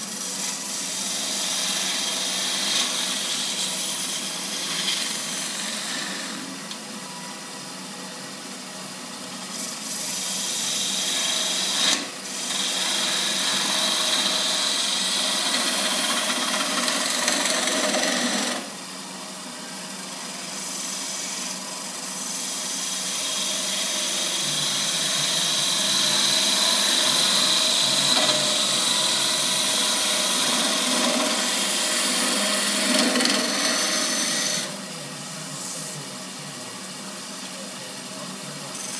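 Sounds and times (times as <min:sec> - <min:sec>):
turning tool scraping wood: 0:00.0 - 0:06.5, 0:09.5 - 0:18.7, 0:20.6 - 0:34.8
wood lathe running: 0:00.0 - 0:38.9.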